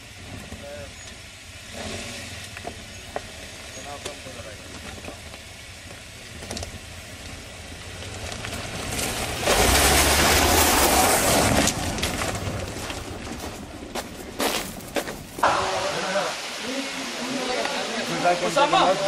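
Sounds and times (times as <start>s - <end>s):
car tyres crunching on gravel: 0.1s - 15.6s.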